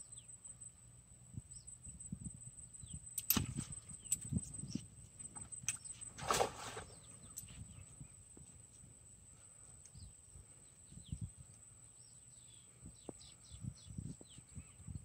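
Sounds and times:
small birds chirping: 0.0 - 0.7, 1.4 - 15.0.

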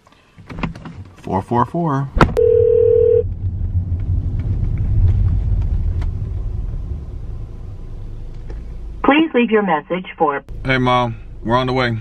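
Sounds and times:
car cabin road and engine rumble: 0.0 - 12.0
phone ringing tone: 2.4 - 3.2.

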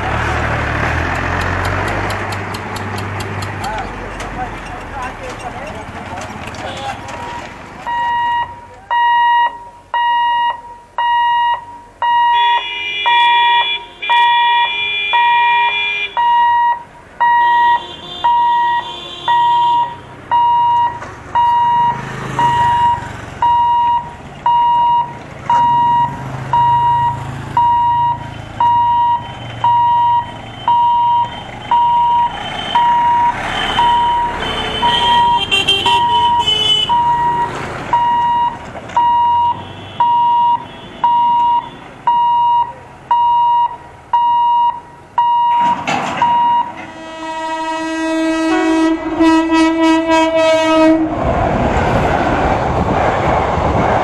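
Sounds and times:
car and motorbike engines passing: 0.0 - 8.8, 19.4 - 54.0
level crossing alarm beeping: 7.3 - 46.9
vehicle horns: 12.1 - 16.6, 17.3 - 20.6, 28.2 - 37.6, 39.0 - 42.0, 45.6 - 51.2.

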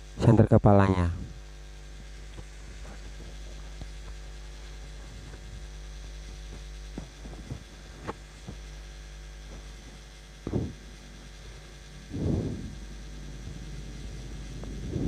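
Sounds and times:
low electrical hum: 0.0 - 15.0
faint clicks and rustles: 2.0 - 11.8
dull thump: 10.4 - 10.8.

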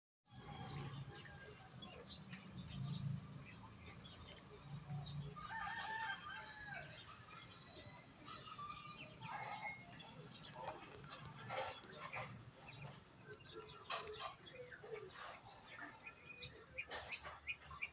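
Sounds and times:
small birds chirping: 0.4 - 17.9
rooster crowing: 5.2 - 7.2.

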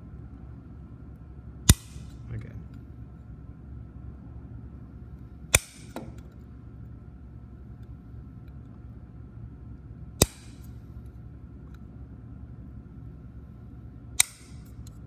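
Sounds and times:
low steady hum: 0.0 - 15.0
diagonal cutters snipping metal: 1.7 - 2.2, 5.6 - 6.0, 10.2 - 10.7, 14.2 - 14.9.

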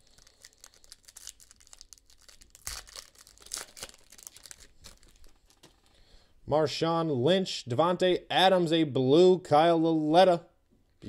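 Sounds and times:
foil pack crinkling: 0.0 - 6.0.

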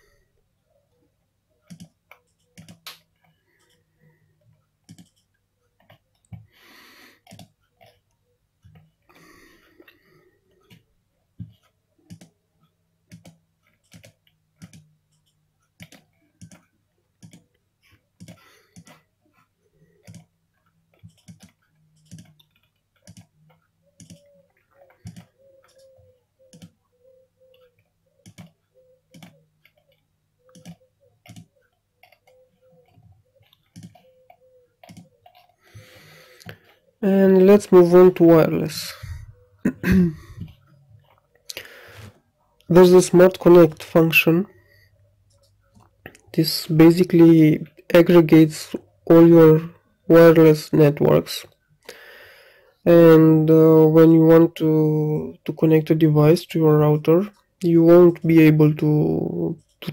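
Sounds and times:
computer mouse clicks: 1.6 - 3.8, 4.8 - 6.5, 7.2 - 8.9, 11.4 - 12.4, 13.1 - 19.1, 20.0 - 36.8.

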